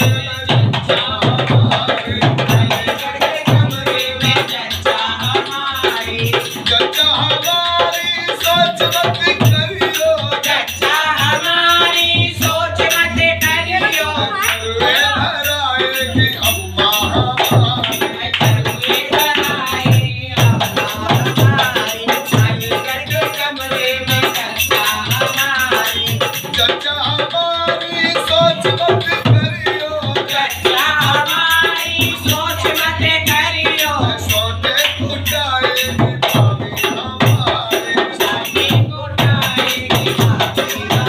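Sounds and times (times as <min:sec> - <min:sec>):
hand drum beating: 0:00.0 - 0:26.7
shaken rattle percussion: 0:02.5 - 0:26.8, 0:30.2 - 0:41.0
person singing: 0:11.8 - 0:25.8.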